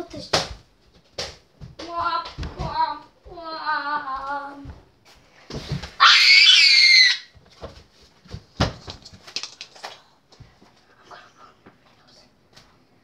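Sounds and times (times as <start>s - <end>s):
child screaming: 6.0s - 7.3s.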